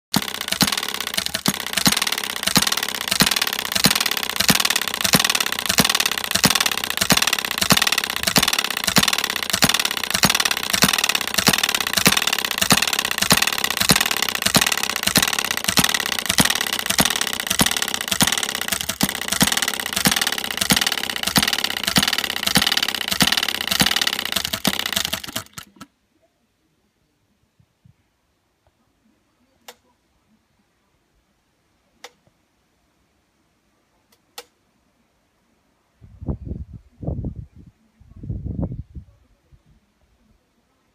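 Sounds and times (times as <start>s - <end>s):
small petrol engine clicking: 0.1s - 25.9s.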